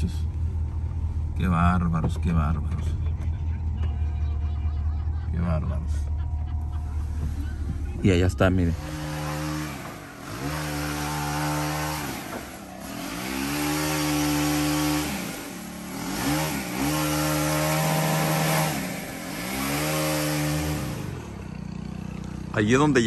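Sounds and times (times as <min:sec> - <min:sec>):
two-stroke power tool running: 0:08.6 - 0:22.5.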